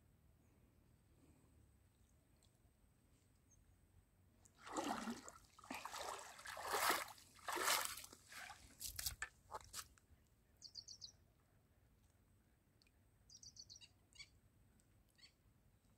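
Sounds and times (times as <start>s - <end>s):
fish splashing in water: 4.6s - 8.5s.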